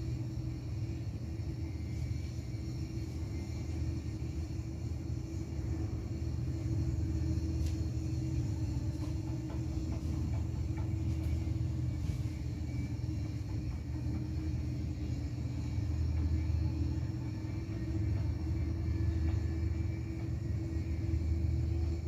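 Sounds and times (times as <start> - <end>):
constant hum: 0.0 - 22.0
distant city traffic rumble: 0.0 - 22.0.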